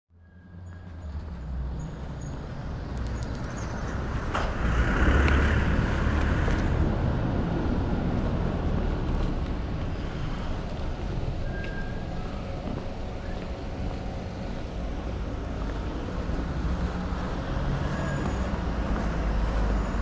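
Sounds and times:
street traffic rumble: 0.1s - 20.0s
car passing: 0.7s - 20.0s.

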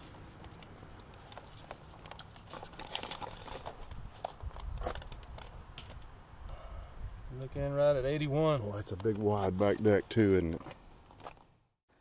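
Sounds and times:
tape measure clicks and rustles: 0.4s - 6.1s.

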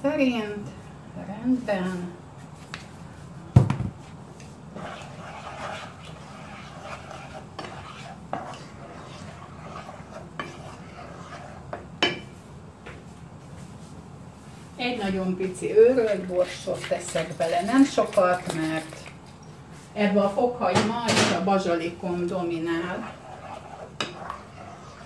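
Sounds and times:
wooden spatula scraping a pan: 4.4s - 11.9s, 14.8s - 19.2s, 21.4s - 25.0s.

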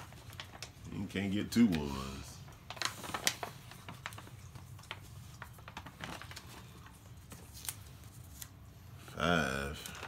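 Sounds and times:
paper rustling and crinkling: 0.0s - 10.0s.

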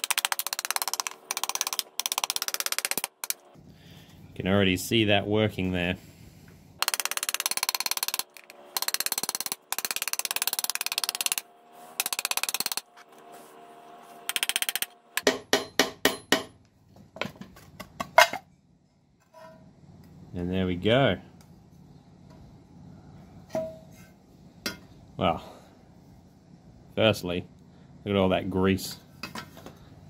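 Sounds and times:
sharp ringing metal knocks: 15.2s - 16.6s.

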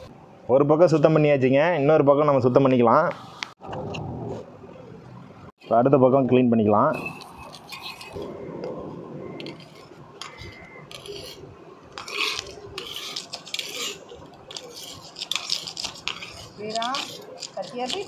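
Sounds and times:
knife scraping fish scales: 7.0s - 8.4s, 9.4s - 18.0s.

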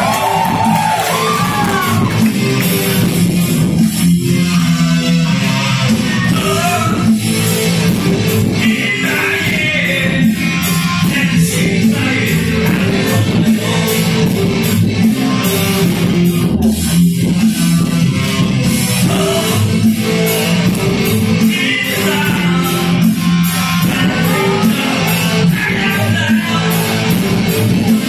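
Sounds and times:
steady drum beat: 0.0s - 4.6s, 5.8s - 28.0s
electric guitar: 0.0s - 28.0s
man singing into a microphone: 6.1s - 7.1s, 8.6s - 14.3s, 19.0s - 20.1s, 21.4s - 28.0s.

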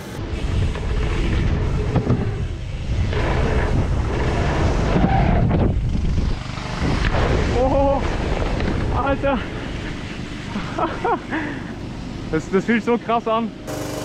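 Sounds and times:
wind buffeting microphone: 0.1s - 10.6s.

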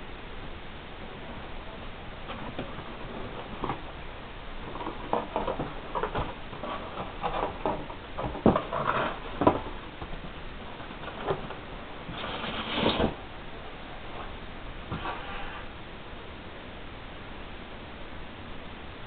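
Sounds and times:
scraping rustle: 1.2s - 13.3s, 14.0s - 15.8s.

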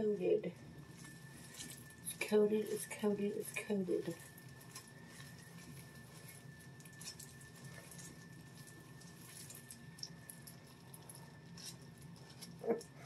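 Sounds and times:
low room hum: 0.0s - 13.0s
gloved hands squishing hair dye: 0.6s - 13.0s.

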